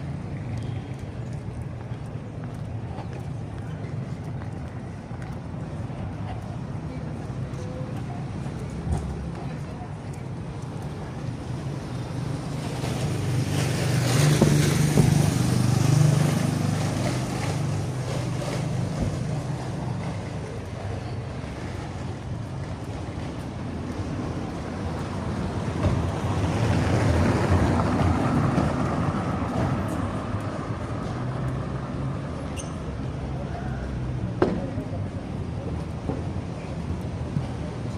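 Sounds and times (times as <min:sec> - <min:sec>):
passing vehicles engine rumble: 0:00.0 - 0:37.9
wind on microphone: 0:13.2 - 0:16.4.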